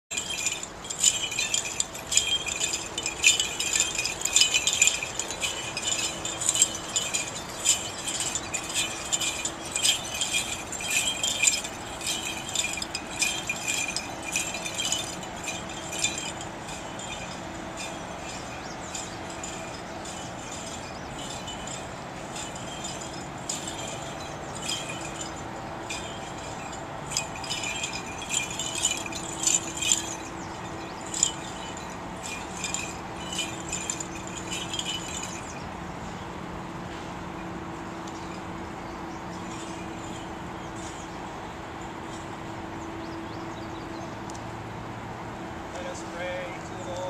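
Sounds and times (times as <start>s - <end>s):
low steady hum: 0.1s - 44.6s
censer bells jingling: 0.1s - 47.0s.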